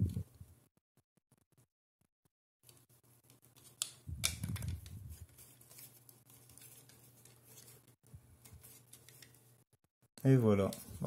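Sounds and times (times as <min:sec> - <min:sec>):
rubbing handling noise: 0:02.6 - 0:11.0.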